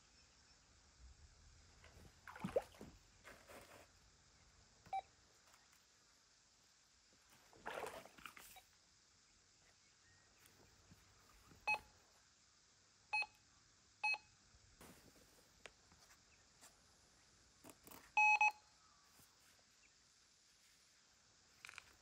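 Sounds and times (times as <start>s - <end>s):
metal detector beeps: 18.2s - 18.6s.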